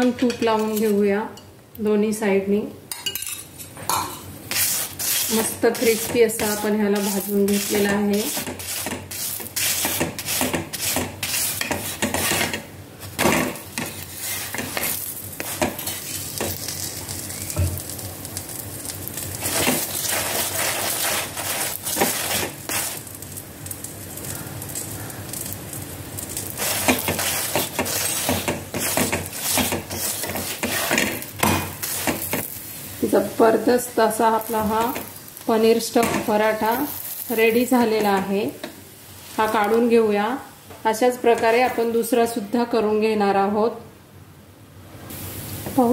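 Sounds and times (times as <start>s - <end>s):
flatbread sizzling in oil: 3.2s - 40.1s, 45.0s - 45.9s
spatula pressing and scraping: 4.5s - 12.6s, 26.6s - 32.5s.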